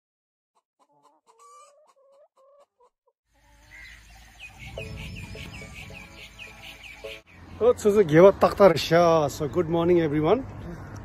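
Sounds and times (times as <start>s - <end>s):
chicken clucking: 0.6s - 7.2s
small birds chirping: 0.8s - 11.0s.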